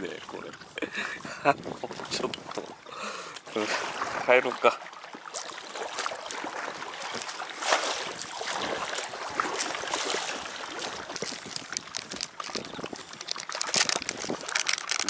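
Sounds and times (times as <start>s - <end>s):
paddle splashing in water: 0.0s - 15.0s.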